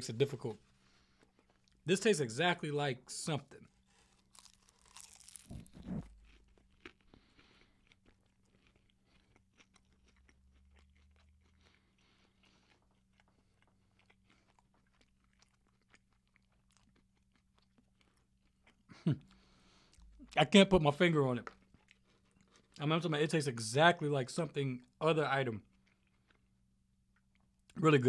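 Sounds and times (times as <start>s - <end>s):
faint chewing: 0.6s - 1.8s, 3.6s - 20.6s, 21.3s - 23.1s, 25.6s - 27.8s
pastry crunching: 3.7s - 19.0s.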